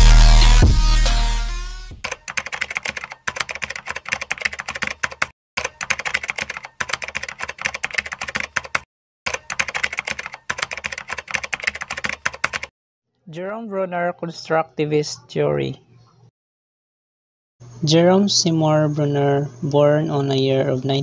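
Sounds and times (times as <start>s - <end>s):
keyboard typing clicks: 2.1s - 12.7s.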